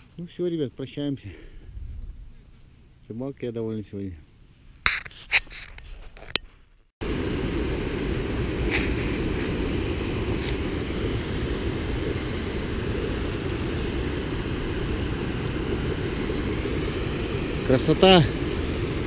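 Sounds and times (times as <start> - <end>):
water rushing over rocks: 7.0 - 19.0.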